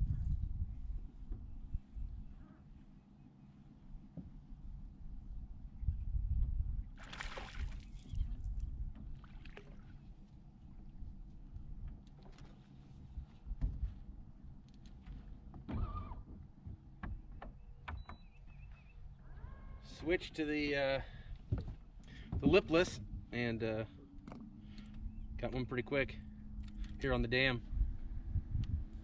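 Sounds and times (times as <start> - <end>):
water lapping at hull: 6.9 - 11.3
fish splashing at water surface: 7.0 - 8.1
knocks and rattles on boat deck: 13.5 - 14.0, 15.0 - 18.6, 21.4 - 23.3.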